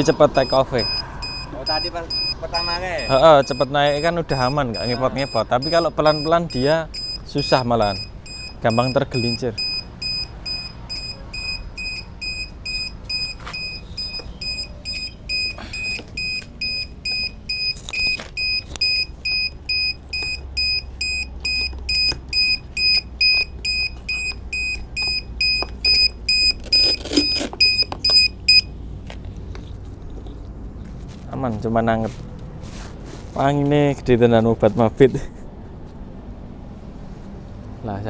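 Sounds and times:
electronic buzzer beeping: 0:00.0 - 0:28.7.

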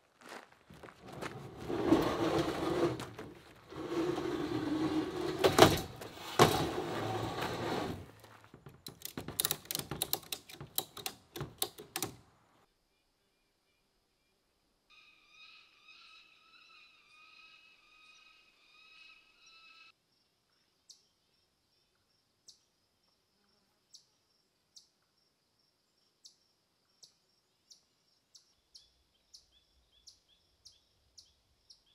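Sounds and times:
canoe hull scraping on metal bars: 0:01.0 - 0:12.2
sharp knocks: 0:08.6 - 0:12.2
strap ratchet clicking: 0:08.8 - 0:12.2.

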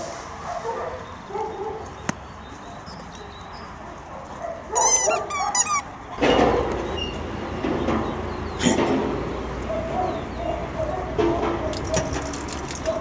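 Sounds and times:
dog barking: 0:00.4 - 0:01.9, 0:03.9 - 0:05.6, 0:09.6 - 0:12.2.

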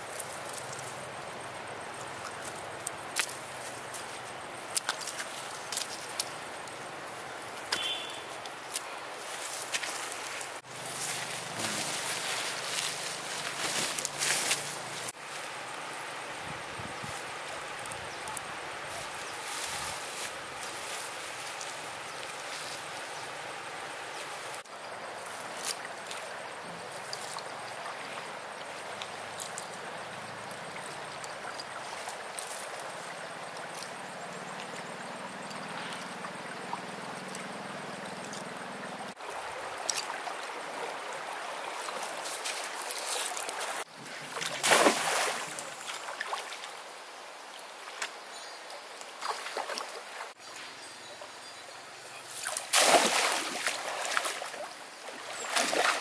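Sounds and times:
stream running: 0:00.0 - 0:56.0
water splash: 0:41.9 - 0:46.6, 0:52.4 - 0:56.0.

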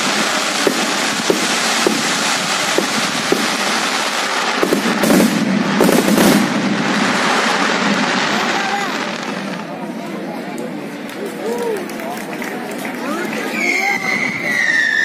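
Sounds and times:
firework pops: 0:00.0 - 0:07.7
firework bangs: 0:00.0 - 0:09.9
fireworks crackling: 0:00.0 - 0:15.0.

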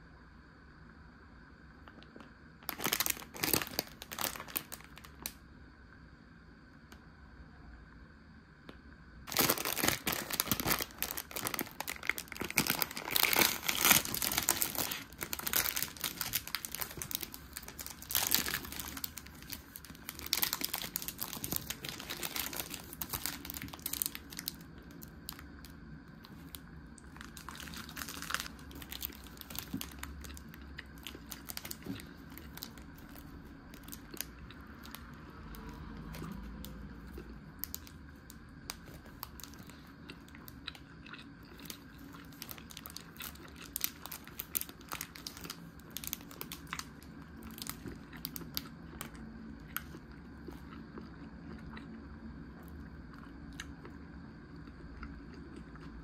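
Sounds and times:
plastic film crinkling and tearing: 0:02.6 - 0:05.4, 0:09.3 - 0:25.4, 0:26.2 - 0:35.0, 0:41.6 - 0:48.6.

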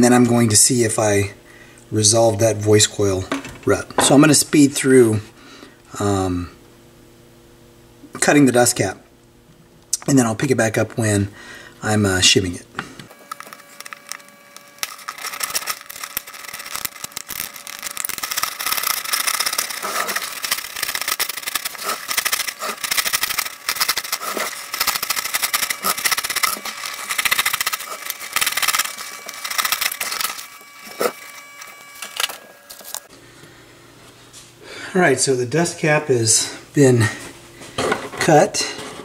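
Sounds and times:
fast scratching and clicking: 0:13.3 - 0:33.1.

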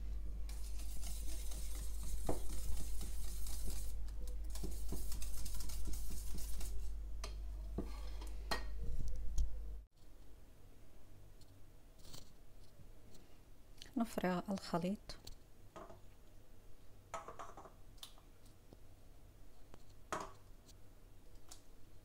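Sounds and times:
whisk tapping bowl: 0:00.5 - 0:03.9, 0:04.5 - 0:06.8
whisk scraping metal bowl: 0:00.5 - 0:06.9.

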